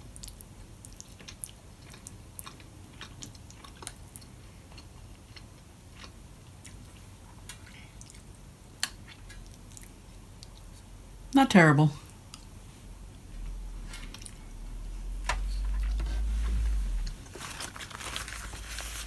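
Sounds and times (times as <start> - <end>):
person chewing food: 0.0 - 11.0, 12.0 - 12.6, 13.8 - 14.7.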